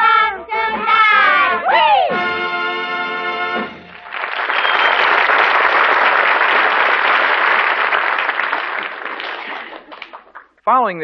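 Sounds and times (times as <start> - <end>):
audience applauding: 3.8 - 10.6.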